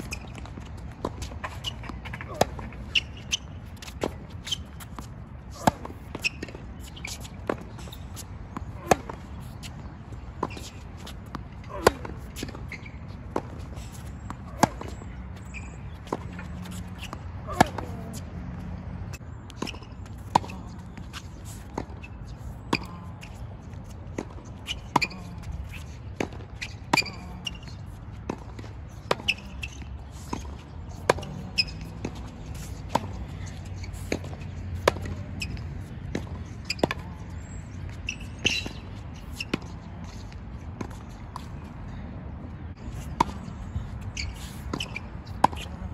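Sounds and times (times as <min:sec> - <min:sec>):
tennis ball struck by rackets: 0:01.0 - 0:09.8, 0:13.3 - 0:18.2, 0:19.6 - 0:22.0, 0:30.3 - 0:37.1, 0:44.1 - 0:45.8.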